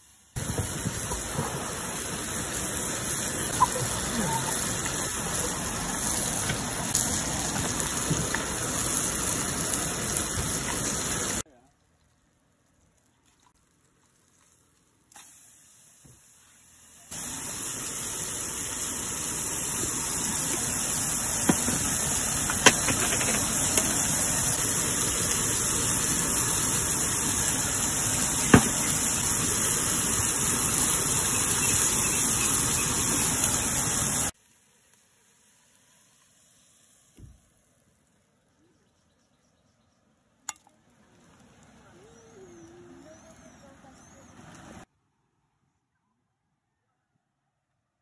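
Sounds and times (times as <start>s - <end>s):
steak sizzling on grill pan: 0.0s - 11.4s, 15.1s - 37.4s.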